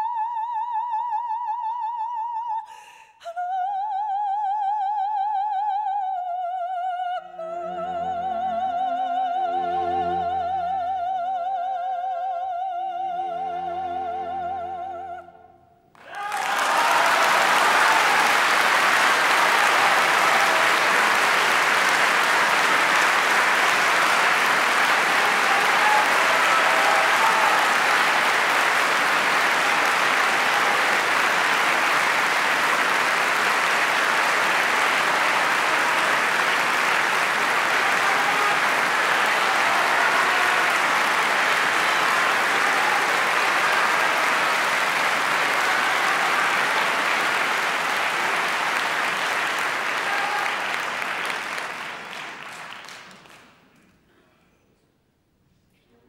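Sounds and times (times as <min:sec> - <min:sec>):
audience applauding: 0:07.6 - 0:08.8, 0:15.9 - 0:53.8.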